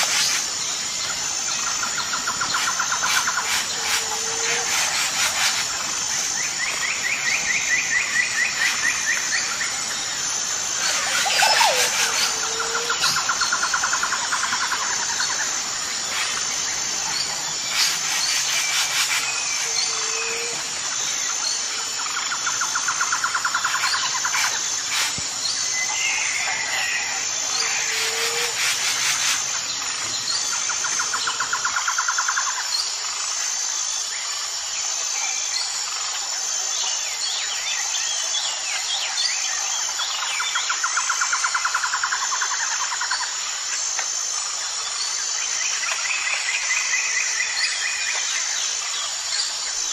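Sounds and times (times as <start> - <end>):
insect drone: 0.0 - 49.9
pulsing insect trills: 0.0 - 49.9
bird chirps: 10.8 - 15.4.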